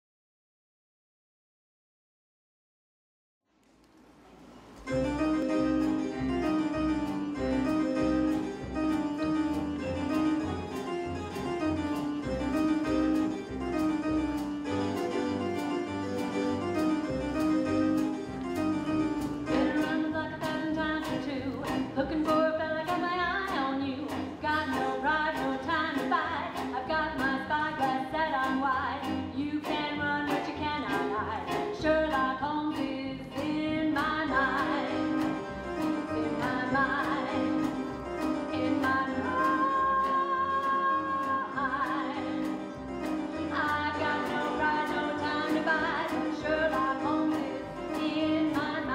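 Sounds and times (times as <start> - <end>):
live band playing show tune: 4.7 - 48.9
person singing: 19.5 - 42.7, 43.3 - 48.9.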